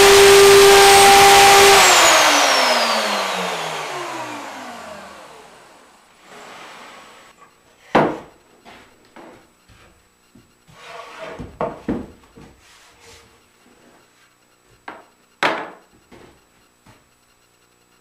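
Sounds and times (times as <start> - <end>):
wood scraping: 6.2 - 7.3, 10.7 - 11.8.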